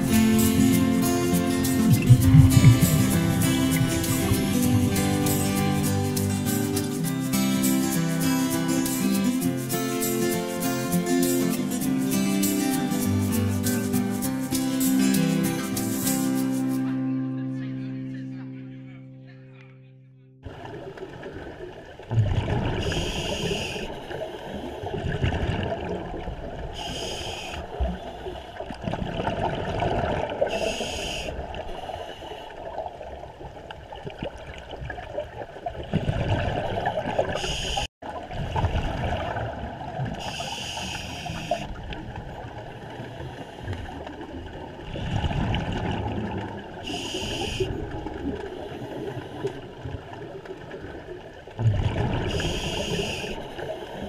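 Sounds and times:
exhaust bubbles rumbling: 1.0 - 5.2, 20.4 - 22.9, 51.5 - 52.4
diver breathing through regulator: 22.8 - 25.1, 26.8 - 28.6, 30.5 - 32.6, 40.2 - 41.8, 46.8 - 47.8, 52.2 - 54.0.

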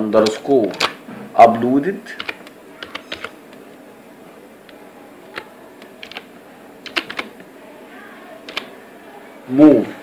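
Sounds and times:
keyboard keystrokes clicking: 0.2 - 1.0, 2.2 - 3.4, 4.7 - 7.4, 8.4 - 8.7.

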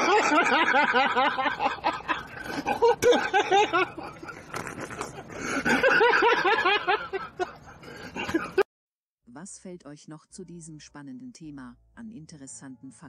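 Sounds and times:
audience laughter: 0.0 - 8.6.

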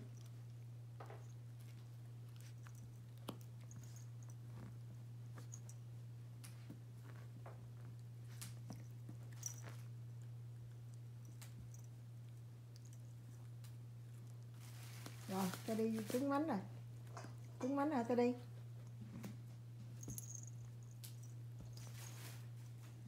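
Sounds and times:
dog gnawing chew stick: 0.0 - 15.2
steady low hum: 0.0 - 23.0.

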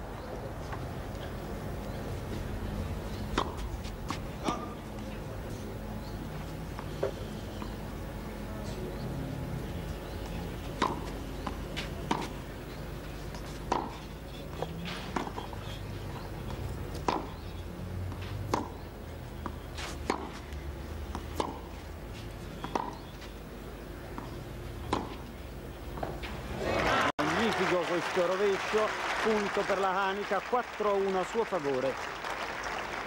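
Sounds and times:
low background noise: 0.0 - 33.0
tennis rackets hitting ball: 3.1 - 6.2, 10.6 - 15.6, 16.2 - 18.8, 19.4 - 20.4, 21.1 - 21.8, 22.6 - 23.3, 24.1 - 25.3.

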